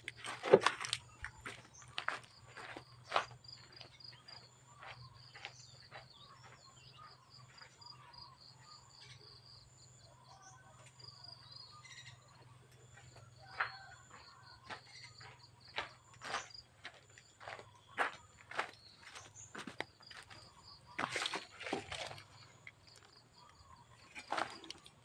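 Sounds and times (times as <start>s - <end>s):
insects and birds chirping: 0.0s - 25.0s.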